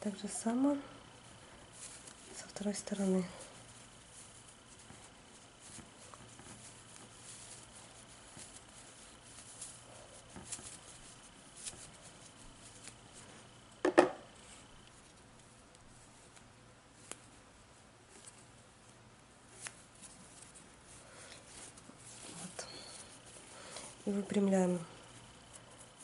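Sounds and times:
fabric rustling and small clicks: 3.7 - 17.4.

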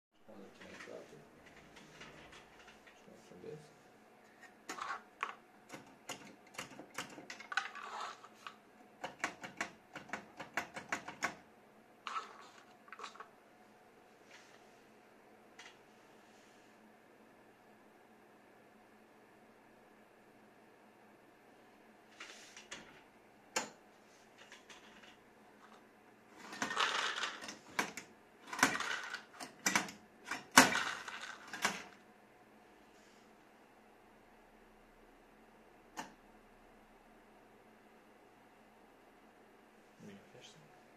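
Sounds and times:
nuts rattling down metal chute: 26.4 - 27.6, 28.4 - 29.5.

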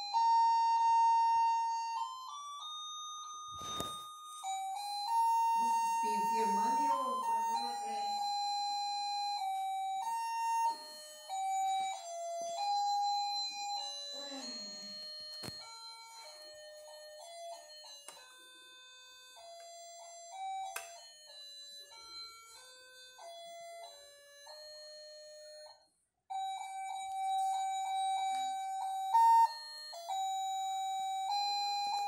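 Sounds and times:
beeping electronic toy melody: 0.0 - 32.0.

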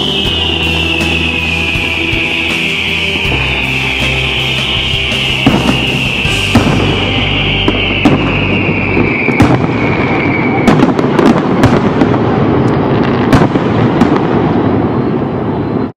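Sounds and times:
high falling whistle: 0.0 - 11.0
fireworks crackling: 0.0 - 15.9.

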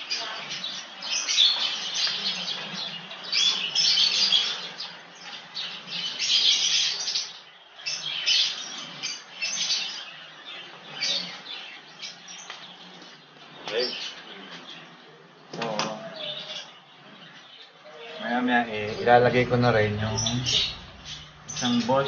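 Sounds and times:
small birds chirping: 0.0 - 22.0
faint low hum: 17.8 - 22.0.

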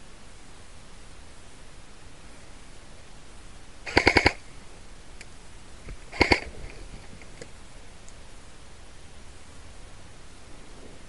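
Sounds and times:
airsoft rifle full-auto bursts: 3.8 - 4.4, 6.1 - 6.5.

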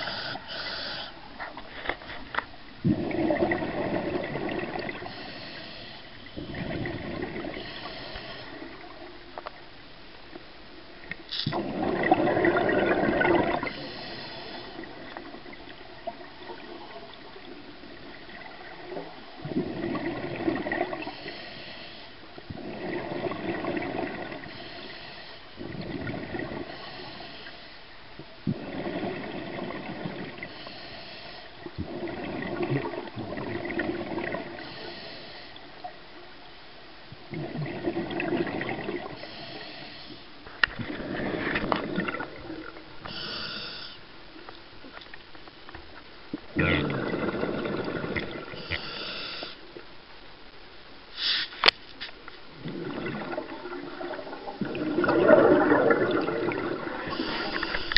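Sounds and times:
exhaled bubbles rushing: 2.8 - 5.2, 6.4 - 7.7, 11.5 - 13.9, 14.7 - 21.1, 22.5 - 24.5, 25.6 - 26.7, 28.5 - 30.5, 31.7 - 34.6, 37.2 - 39.2, 40.7 - 43.0, 46.5 - 48.6, 52.5 - 57.9
regulator hiss: 43.0 - 44.1, 48.6 - 49.7, 51.1 - 52.2, 57.0 - 57.9.

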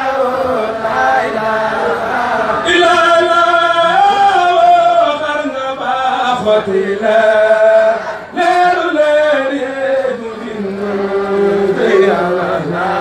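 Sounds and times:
man chanting religious poem: 0.0 - 13.0.

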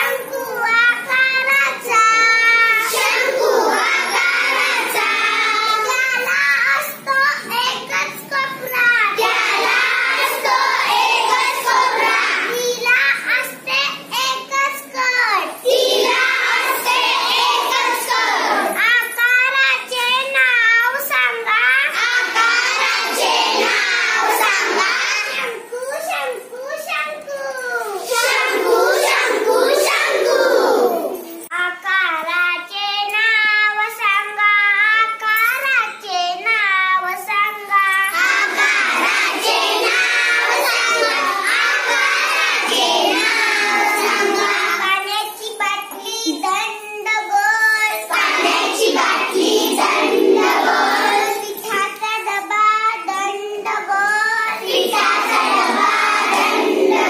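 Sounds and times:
girls singing in chorus: 2.2 - 6.0, 9.2 - 12.5, 15.6 - 18.8, 22.0 - 25.4, 28.0 - 31.4, 38.0 - 44.8, 48.0 - 51.5, 53.8 - 57.0.

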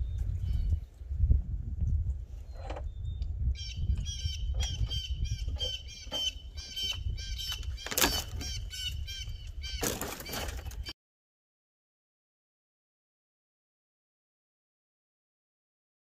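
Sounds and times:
wind rumble on microphone: 0.0 - 10.9.

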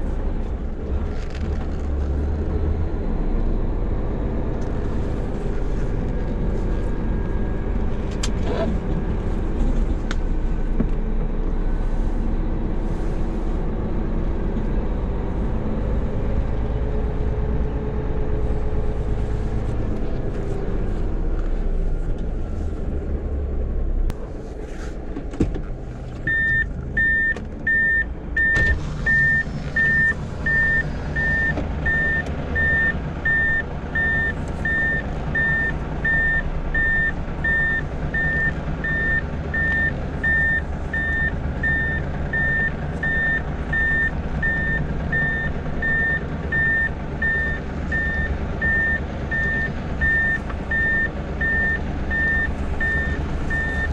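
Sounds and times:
diesel engine running: 0.0 - 53.9
truck reversing alarm beeping: 26.3 - 53.9.

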